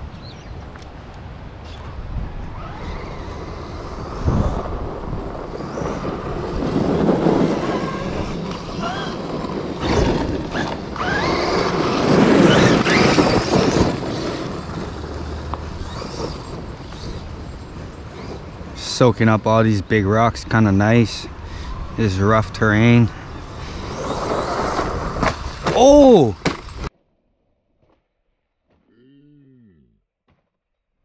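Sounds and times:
electric motor whining: 0:02.4 - 0:18.8, 0:20.7 - 0:26.9.

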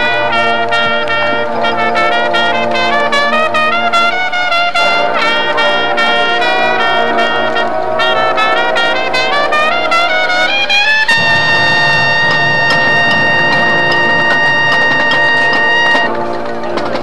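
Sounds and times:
brass section playing melody: 0:00.0 - 0:17.0
percussion striking in rhythm: 0:10.9 - 0:17.0.

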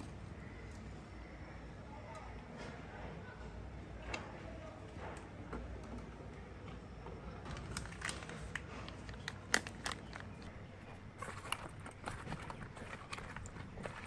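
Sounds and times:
plastic packet crinkling: 0:07.5 - 0:14.0.

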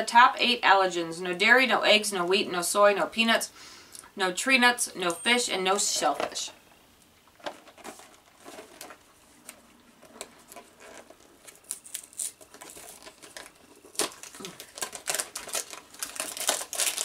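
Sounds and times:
packaging crinkling and rustling: 0:07.3 - 0:17.0.

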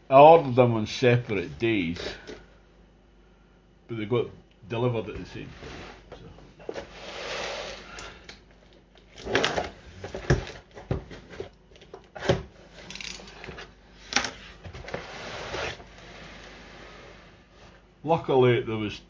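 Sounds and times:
cardboard rustling and scraping: 0:05.2 - 0:07.9, 0:09.2 - 0:11.6, 0:12.2 - 0:17.8.

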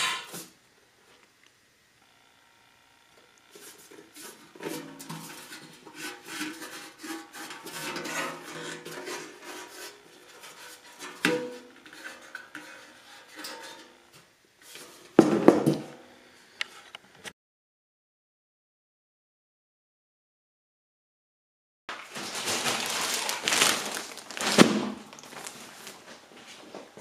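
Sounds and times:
metal can clanging down: 0:11.0 - 0:12.7.

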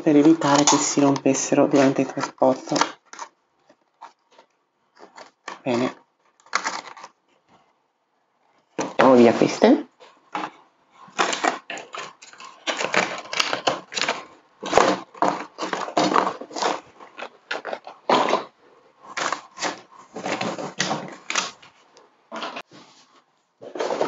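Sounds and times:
plastic packaging crinkling: 0:00.0 - 0:07.3, 0:08.7 - 0:24.0.

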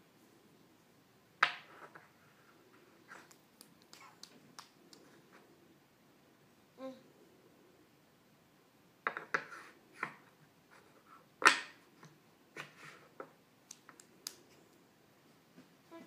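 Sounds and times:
hands clapping: 0:03.3 - 0:05.0.

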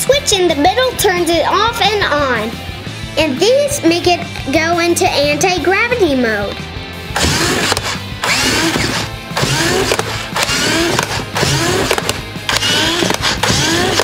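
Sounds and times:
background music: 0:00.0 - 0:14.0
toy car motor whirring: 0:07.2 - 0:14.0.

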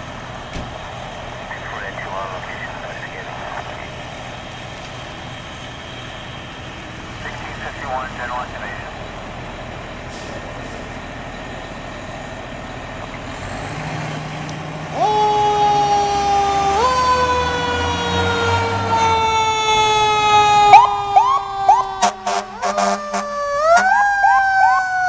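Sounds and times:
diesel engine running: 0:00.0 - 0:25.0
fire engine air horn blast: 0:21.9 - 0:24.0.

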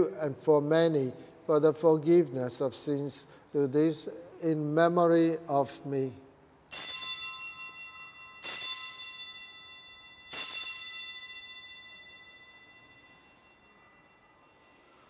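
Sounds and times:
altar bell ringing: 0:06.7 - 0:15.0.

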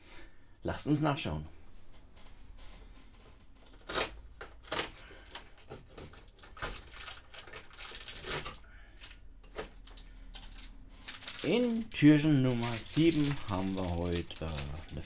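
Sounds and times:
cardboard scratching and ripping: 0:11.0 - 0:15.0.

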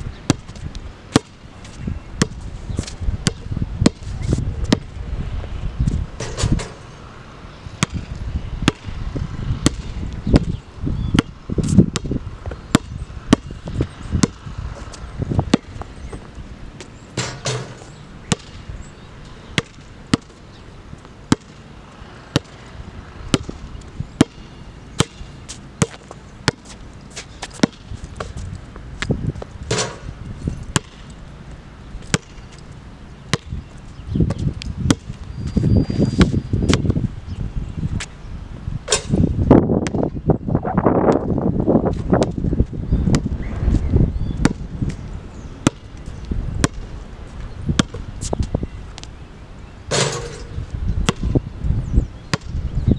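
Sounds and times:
basketball bouncing on hard court: 0:00.3 - 0:00.6, 0:02.2 - 0:02.4, 0:03.2 - 0:04.1, 0:07.8 - 0:09.0, 0:09.6 - 0:10.6, 0:11.2 - 0:14.4, 0:15.4 - 0:16.2, 0:17.2 - 0:18.6, 0:19.6 - 0:20.4, 0:21.3 - 0:21.6, 0:22.3 - 0:22.6, 0:23.3 - 0:23.6, 0:24.2 - 0:26.8, 0:27.4 - 0:28.4, 0:30.7 - 0:31.0, 0:32.0 - 0:32.5, 0:33.3 - 0:33.6, 0:34.3 - 0:35.2, 0:39.8 - 0:40.0, 0:44.4 - 0:44.6, 0:45.6 - 0:45.9, 0:46.6 - 0:46.9, 0:47.8 - 0:48.0, 0:51.0 - 0:51.4, 0:52.3 - 0:52.6.

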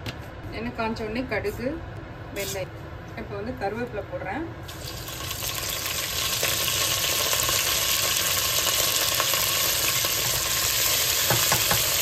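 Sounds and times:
seeds sizzling in hot oil: 0:04.6 - 0:12.0.

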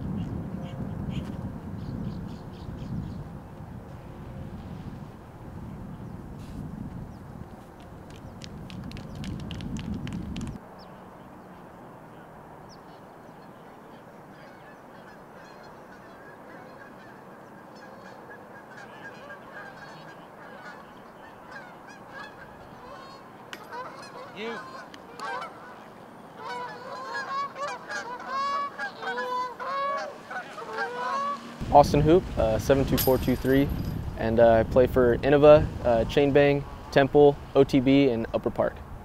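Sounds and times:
geese honking: 0:13.6 - 0:31.6.

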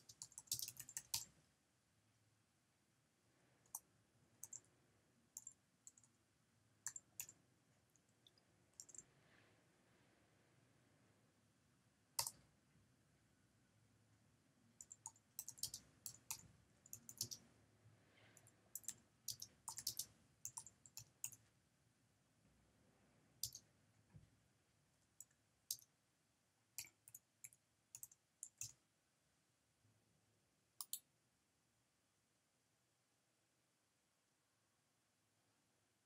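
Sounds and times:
faint keyboard typing: 0:00.0 - 0:01.4, 0:03.6 - 0:06.2, 0:06.8 - 0:09.2, 0:12.1 - 0:12.5, 0:14.8 - 0:17.5, 0:18.2 - 0:21.5, 0:23.4 - 0:24.3, 0:25.0 - 0:25.9, 0:26.7 - 0:28.8, 0:30.8 - 0:31.1.

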